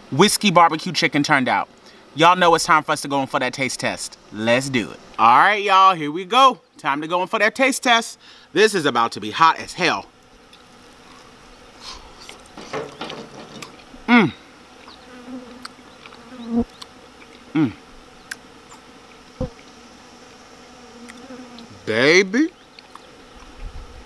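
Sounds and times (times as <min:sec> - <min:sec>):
man humming: 0:13.9 - 0:14.5, 0:17.5 - 0:17.9.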